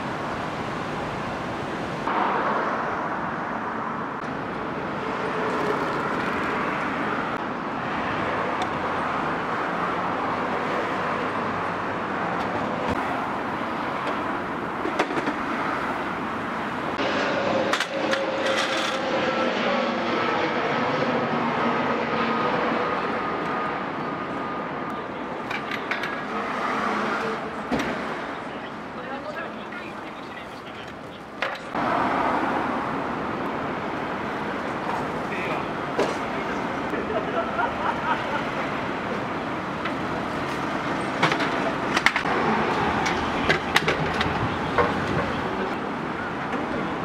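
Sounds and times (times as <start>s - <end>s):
urban traffic noise: 0.0s - 47.0s.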